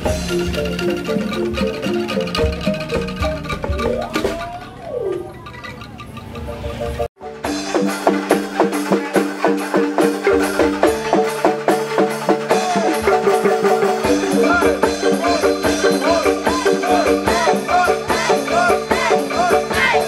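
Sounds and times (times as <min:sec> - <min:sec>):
struck percussion beat: 0:00.0 - 0:04.8, 0:06.4 - 0:20.0
held synth tones: 0:00.0 - 0:11.5.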